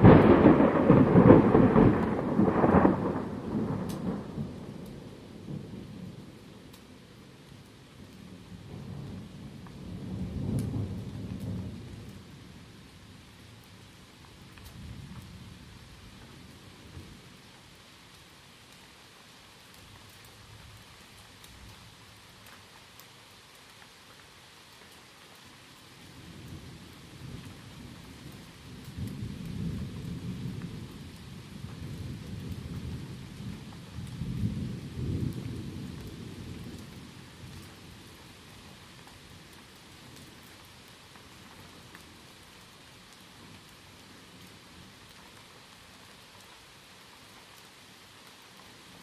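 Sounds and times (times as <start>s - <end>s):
thunder rolling: 0.0s - 4.8s
rain falling: 0.0s - 49.0s.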